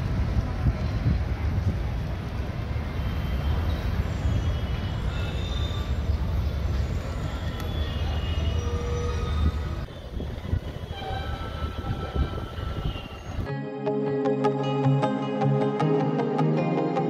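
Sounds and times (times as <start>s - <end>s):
train rumbling: 0.0s - 13.5s
high squeals: 3.1s - 13.5s.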